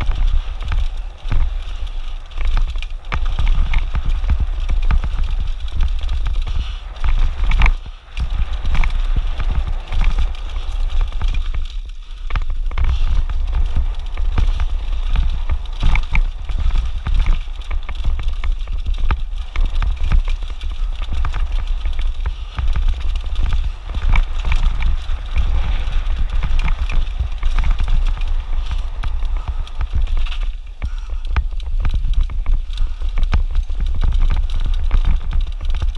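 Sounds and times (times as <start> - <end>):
bike clattering over rocks: 0.0 - 35.9
tyres crunching over stones: 0.0 - 35.9
wind rumble on microphone: 0.0 - 35.9.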